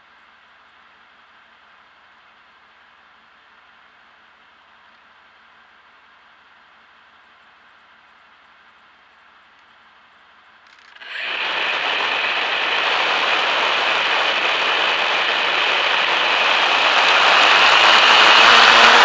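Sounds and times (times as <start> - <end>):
model plane propeller whirring: 10.6 - 19.0.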